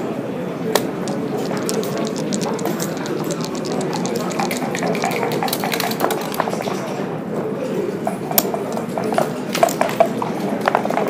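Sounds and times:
checkers and dice clicking: 0.8 - 6.8.

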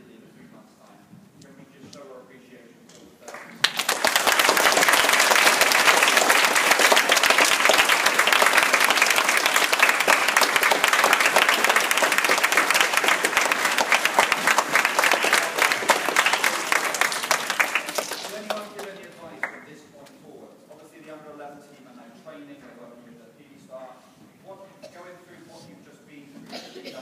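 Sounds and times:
children applauding: 3.3 - 19.6.

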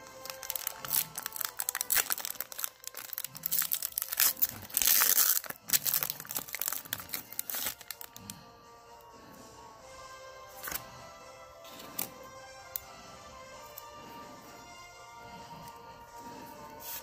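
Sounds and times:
foil wrapper crinkling: 0.0 - 8.2
foil wrapper tearing: 0.0 - 8.2.

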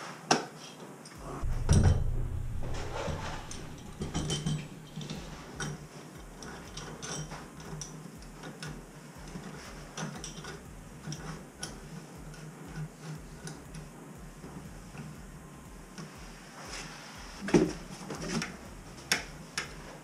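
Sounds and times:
small metallic clicks and ticks: 3.5 - 15.1.

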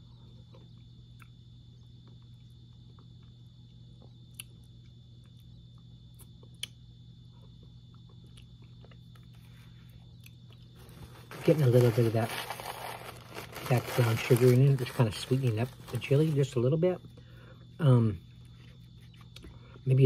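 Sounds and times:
steady low hum: 0.0 - 20.0
faint chewing: 7.4 - 11.1.

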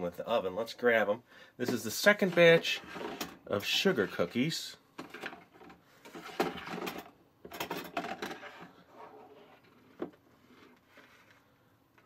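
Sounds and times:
metal pan scraping through plastic slot: 2.2 - 3.4.

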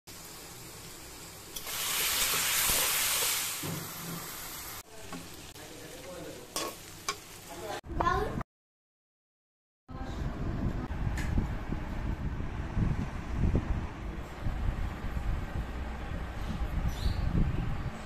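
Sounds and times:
onions sizzling in hot oil: 0.1 - 7.8.

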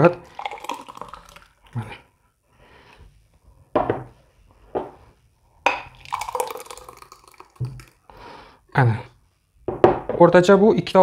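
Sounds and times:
thick juice pouring into glass: 0.0 - 1.8, 5.8 - 8.2.

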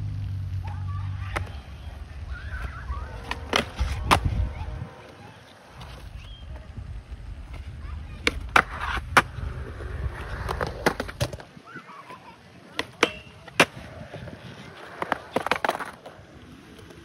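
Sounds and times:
skateboard wheels rolling on concrete: 0.0 - 17.0
skateboard clacks and scrapes: 2.5 - 6.4, 7.4 - 17.0.

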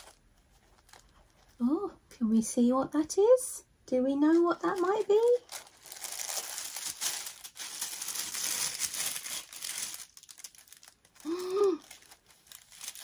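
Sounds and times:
tissue paper rustling: 4.6 - 13.0
person humming: 11.2 - 11.9.

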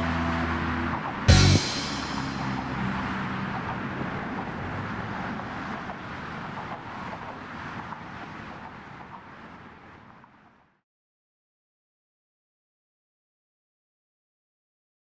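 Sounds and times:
passing cars: 0.0 - 10.8
wind: 0.0 - 10.8.

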